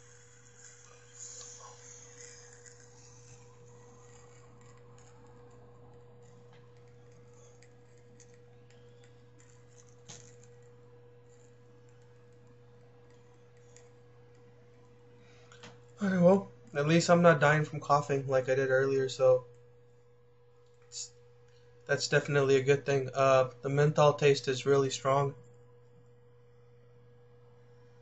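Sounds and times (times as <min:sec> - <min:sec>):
faint steady tone: 0:00.0 - 0:20.0
low hum: 0:00.0 - 0:28.0.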